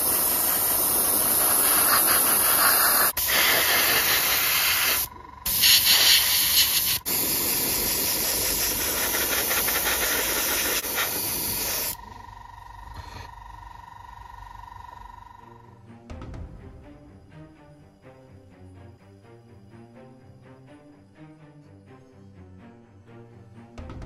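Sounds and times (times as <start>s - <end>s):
airbrush hissing: 0.0s - 13.8s.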